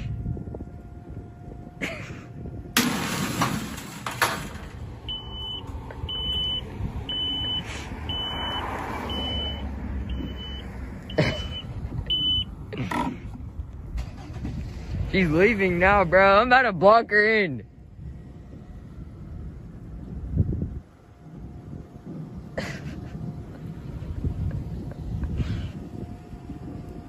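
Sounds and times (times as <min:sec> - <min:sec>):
short high beeps: 0:05.1 - 0:10.7, 0:11.4 - 0:12.5
wheels rolling on asphalt: 0:17.8 - 0:27.0.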